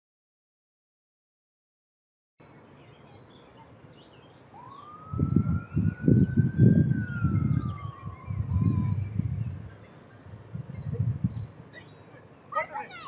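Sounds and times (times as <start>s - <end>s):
birds chirping: 2.4s - 13.0s
siren wail: 4.5s - 9.7s
low rumbling: 4.9s - 11.7s.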